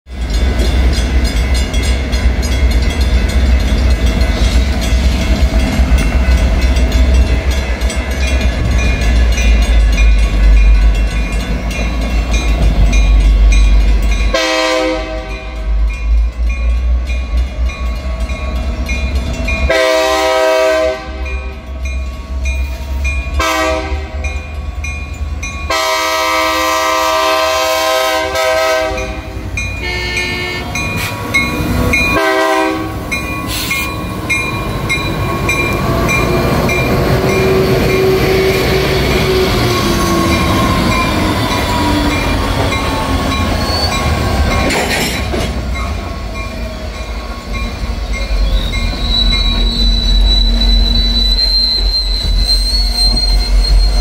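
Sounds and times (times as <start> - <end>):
diesel locomotive engine rumble: 0.1 - 54.0
train wheel noise: 0.1 - 54.0
multi-note train air horn: 14.3 - 15.8, 19.7 - 21.5, 23.4 - 24.2, 25.7 - 30.8, 32.2 - 33.7.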